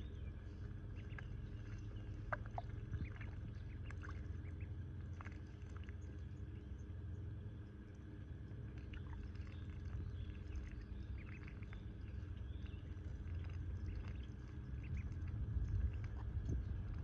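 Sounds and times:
ducklings splashing and chirping: 0.0 - 17.0
steady low rumble: 0.0 - 17.0.

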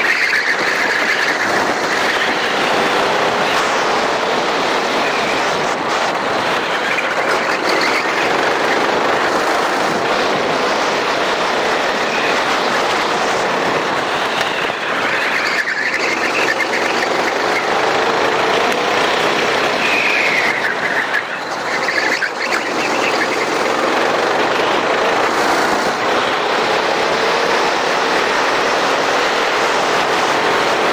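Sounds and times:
kart engine running: 0.0 - 30.9
tyres squealing: 11.9 - 25.4.

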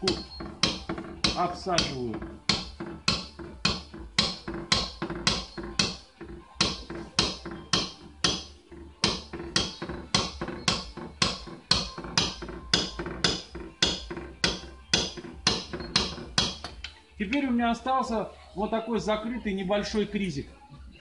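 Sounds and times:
hammer tapping punch on metal: 0.0 - 6.0, 6.6 - 16.9.

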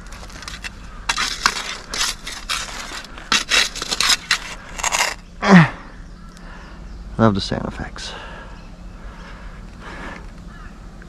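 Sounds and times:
digging scraping and crunching: 0.0 - 5.7.

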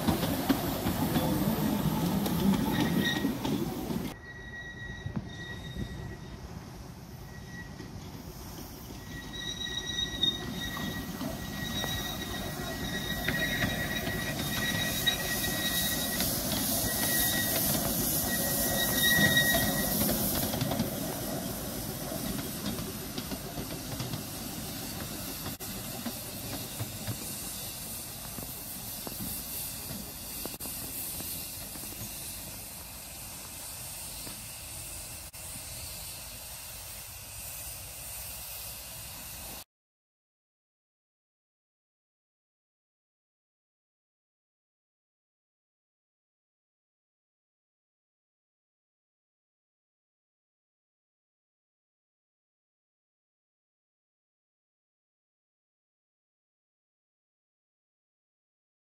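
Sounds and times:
locomotive rumble: 0.0 - 36.1
steam hissing: 0.0 - 39.7
train wheels squealing on rails: 0.0 - 39.7.

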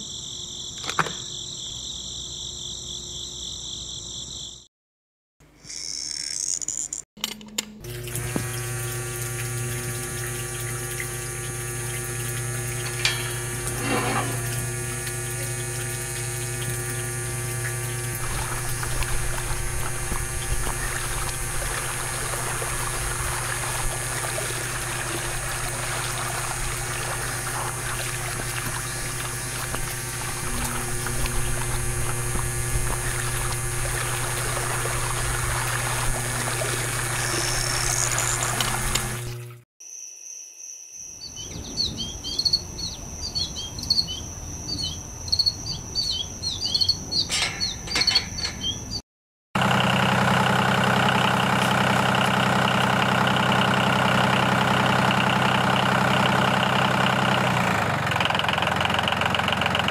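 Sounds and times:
small motor humming: 7.8 - 39.6
water pouring and splashing: 7.9 - 39.6.

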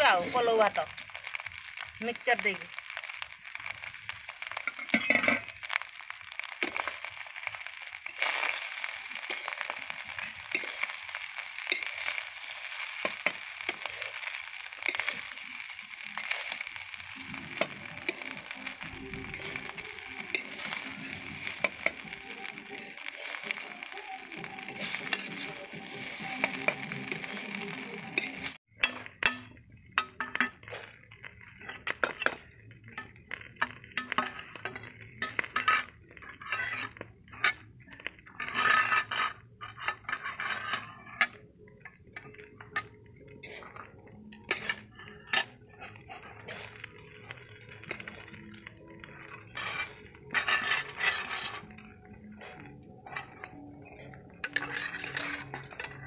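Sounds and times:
metal spoon scraping pan: 4.6 - 5.5, 8.0 - 11.0, 24.4 - 27.6, 33.0 - 37.6, 38.2 - 41.4, 42.2 - 56.0.

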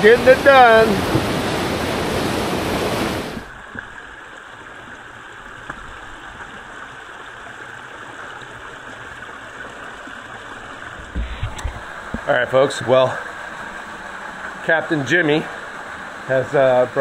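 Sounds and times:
river rapids rushing: 0.0 - 3.6
creek flowing over rocks: 0.0 - 17.0.

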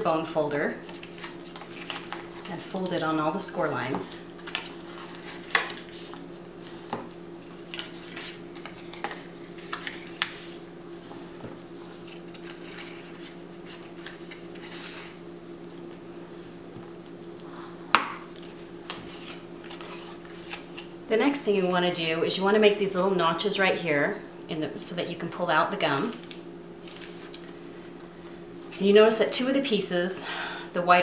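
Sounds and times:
steady low hum: 0.0 - 31.0
cardstock rustling and creasing: 0.8 - 2.6, 7.6 - 15.8, 18.4 - 20.9.

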